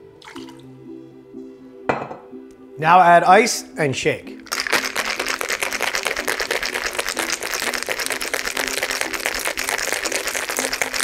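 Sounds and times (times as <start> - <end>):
ice cubes rattling in a shaker: 4.4 - 11.0.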